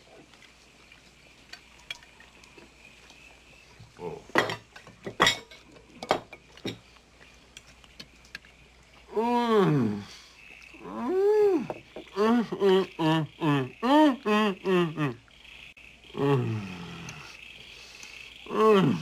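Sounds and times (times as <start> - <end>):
cutlery clinking on plates: 4.3 - 6.9.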